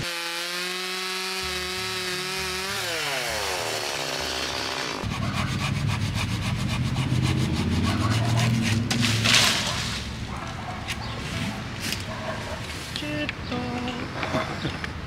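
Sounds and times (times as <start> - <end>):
chainsaw running: 0.0 - 5.1.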